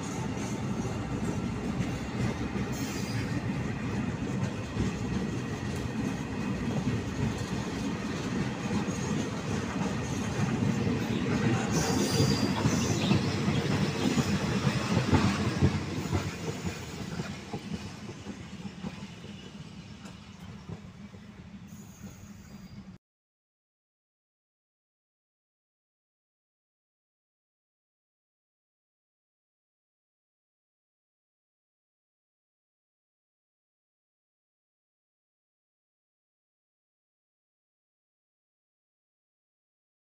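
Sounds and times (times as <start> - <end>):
freight train wheels rumbling on rails: 0.0 - 23.0.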